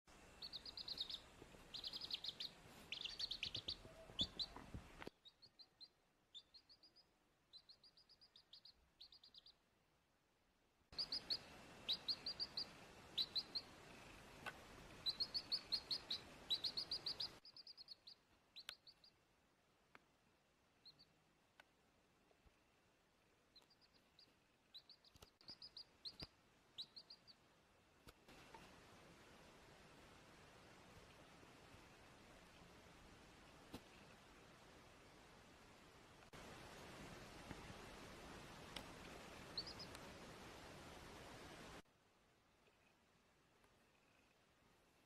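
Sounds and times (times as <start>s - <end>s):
background hiss: 0.1s - 45.0s
chick peeping: 0.4s - 9.6s, 11.0s - 19.2s, 23.5s - 27.4s, 39.5s - 40.1s.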